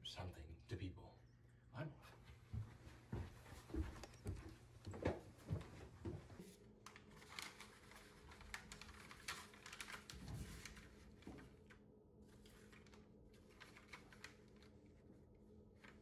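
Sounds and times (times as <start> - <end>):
soft footsteps: 2.2 - 6.5
paper rustling and ticking: 6.8 - 15.1, 15.7 - 16.0.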